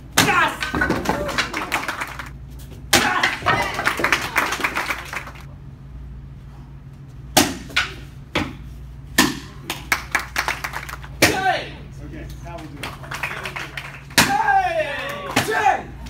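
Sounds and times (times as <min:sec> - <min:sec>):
hand strikes breaking boards: 0:00.2 - 0:01.6, 0:02.9 - 0:04.1, 0:14.1 - 0:14.6
audience applause: 0:01.2 - 0:02.3, 0:03.6 - 0:05.5, 0:12.8 - 0:14.1.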